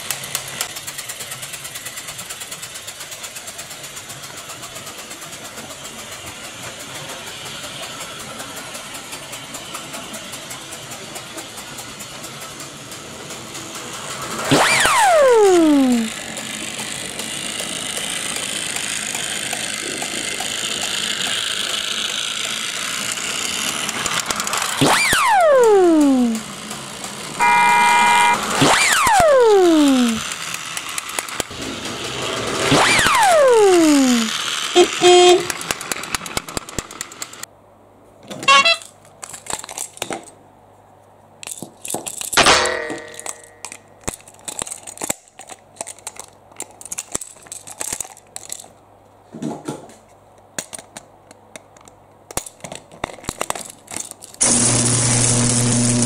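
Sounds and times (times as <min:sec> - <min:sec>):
toy train rattling on track: 0:00.0 - 0:37.5, 0:38.3 - 0:40.4, 0:41.4 - 0:48.8, 0:50.5 - 0:55.4
toy train toot: 0:14.5 - 0:23.0, 0:24.8 - 0:26.6, 0:27.3 - 0:30.7, 0:32.6 - 0:36.0, 0:38.3 - 0:39.0
falling whistle sound effects: 0:27.4 - 0:30.2
plastic clicks: 0:38.2 - 0:40.4, 0:43.0 - 0:48.8, 0:50.3 - 0:54.5.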